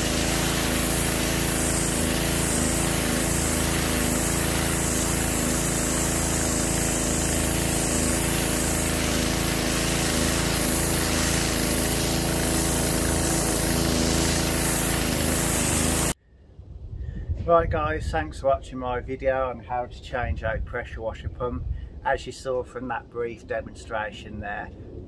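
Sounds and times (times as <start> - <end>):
high-pressure jet spraying concrete: 0.0 - 16.2
pressure washer engine drone: 0.0 - 16.2.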